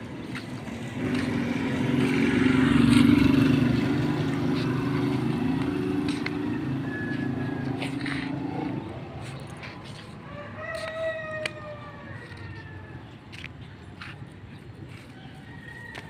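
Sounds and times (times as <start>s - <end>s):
vehicle engine passing by: 0.0s - 13.4s.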